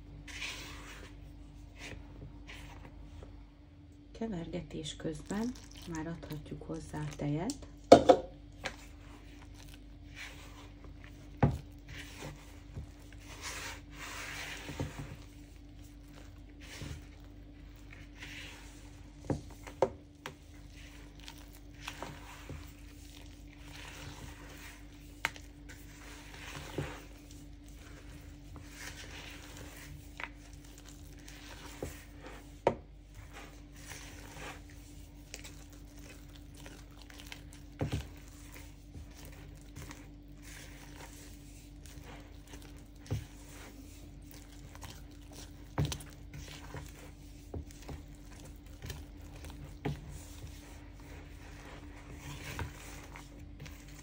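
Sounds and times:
spatula scraping batter in bowl: 0.0s - 3.0s, 8.4s - 54.0s
spatula knocking bowl: 7.8s - 8.4s.

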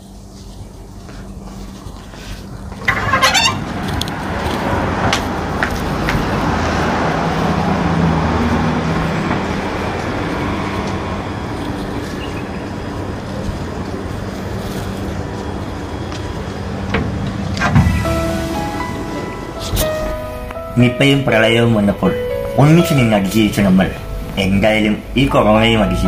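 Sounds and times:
street traffic passing: 0.2s - 26.0s.

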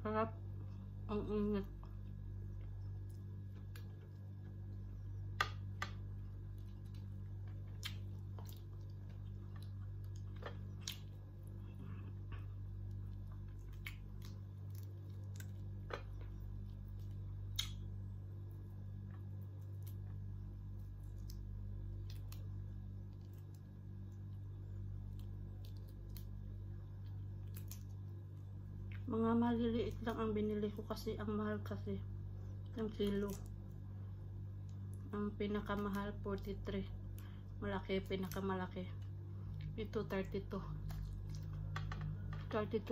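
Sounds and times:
steady low hum: 0.0s - 42.9s
chewing and smacking: 1.8s - 29.1s, 40.7s - 42.5s
mouth chewing clicks and smacks: 12.0s - 17.9s.

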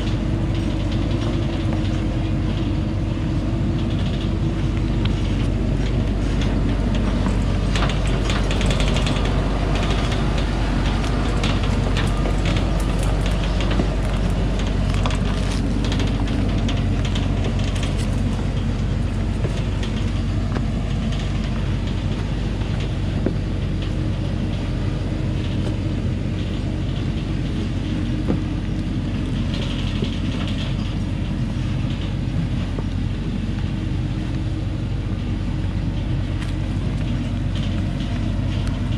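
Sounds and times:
clicks and rattles: 0.0s - 34.6s
truck diesel engine pulling: 0.0s - 38.9s.

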